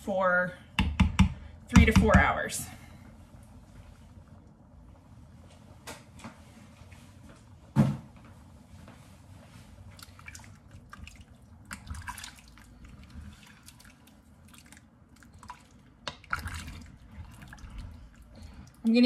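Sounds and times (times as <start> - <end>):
stew sloshing: 10.0 - 19.0.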